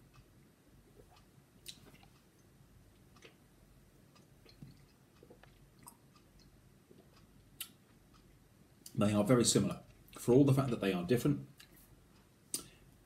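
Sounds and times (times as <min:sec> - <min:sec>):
wet mouth clicks and smacks: 0:01.1 - 0:02.1.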